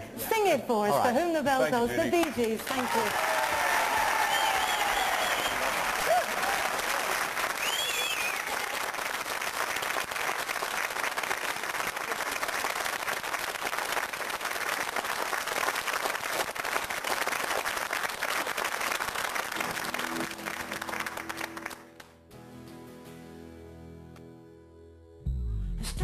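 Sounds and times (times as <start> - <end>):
audience applauding: 1.9 - 22.2
music: 19.6 - 26.0.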